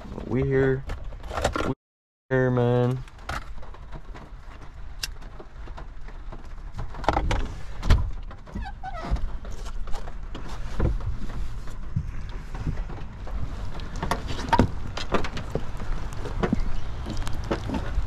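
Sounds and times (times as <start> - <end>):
fishing gear knocking and rustling: 9.2 - 18.0.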